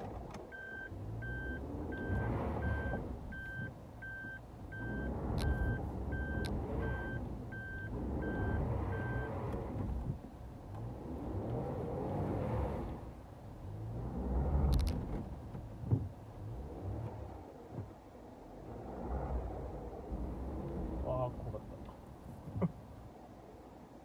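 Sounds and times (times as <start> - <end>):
car engine running: 0.0 - 22.7
reverse warning beeper: 0.5 - 9.4.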